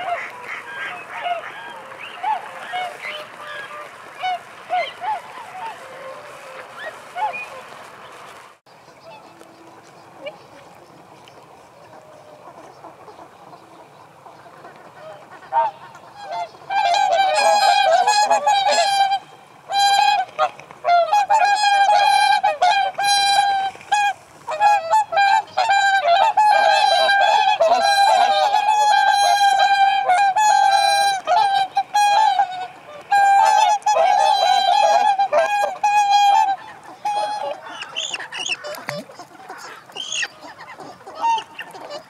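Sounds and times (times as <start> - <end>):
swans honking: 0.0 - 10.8, 11.5 - 42.0.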